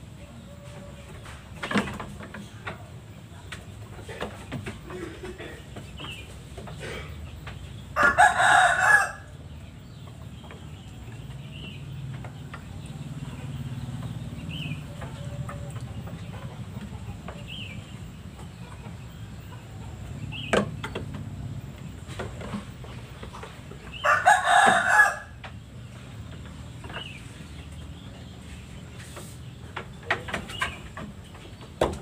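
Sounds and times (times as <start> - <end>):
low background noise: 0.0 - 32.0
rooster crowing: 8.0 - 9.3, 24.0 - 25.4.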